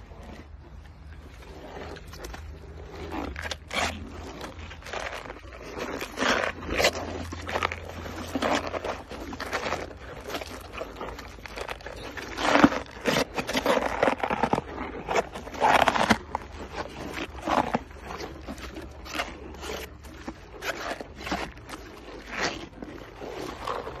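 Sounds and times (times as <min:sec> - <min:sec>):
hippopotamus chewing vegetables: 0:00.0 - 0:24.0.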